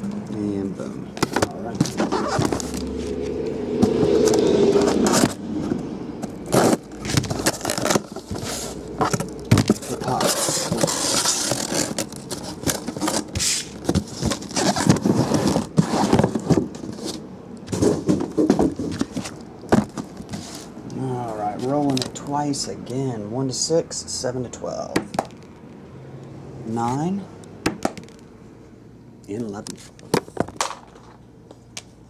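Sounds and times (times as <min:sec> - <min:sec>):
cardboard scraping and rustling: 0:01.2 - 0:20.7
boxes knocking when stacked: 0:17.7 - 0:20.5.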